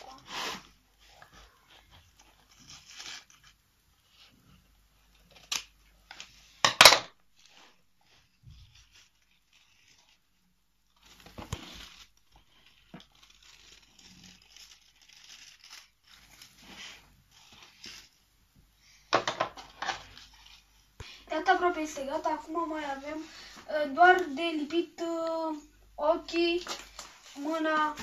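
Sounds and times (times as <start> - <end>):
paper rustling and crinkling: 0.0 - 6.7, 7.3 - 18.2, 19.2 - 24.3, 26.4 - 28.0
scissors snipping paper: 11.0 - 16.6.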